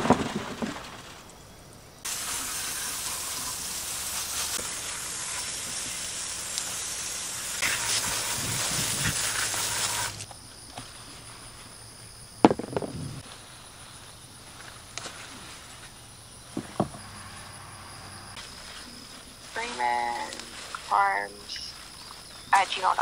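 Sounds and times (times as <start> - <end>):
water hissing from hose nozzle: 2.1 - 10.3.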